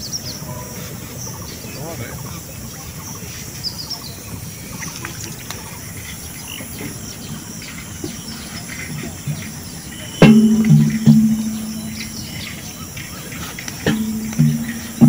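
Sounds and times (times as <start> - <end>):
bird chirps: 0.0 - 15.0
steady low rustle: 6.3 - 15.0.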